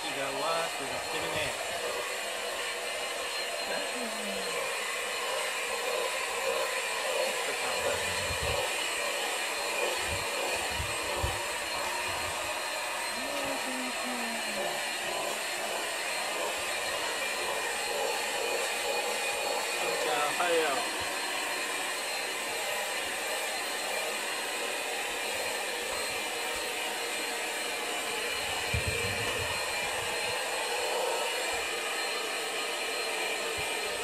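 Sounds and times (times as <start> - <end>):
vacuum cleaner running: 0.0 - 34.0.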